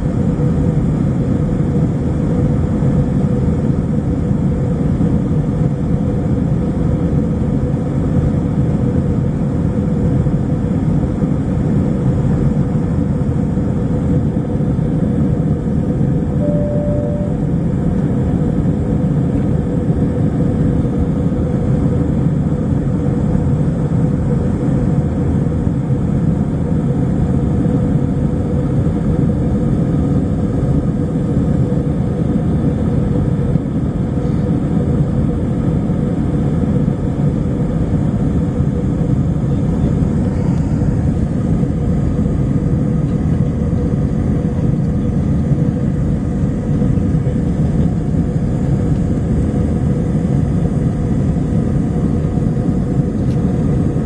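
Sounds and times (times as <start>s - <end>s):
jet engine and airflow rush: 0.0s - 54.0s
faint steady hum: 12.8s - 24.7s.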